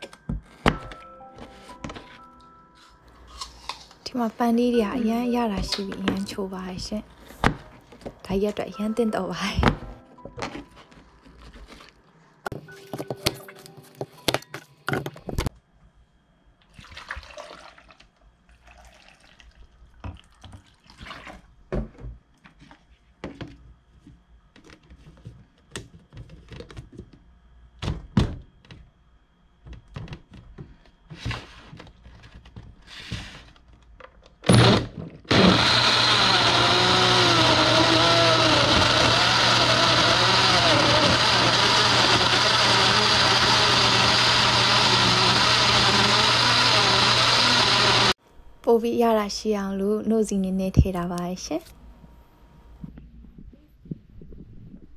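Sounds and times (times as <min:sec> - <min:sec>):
electric blender running: 0:34.5 - 0:48.2.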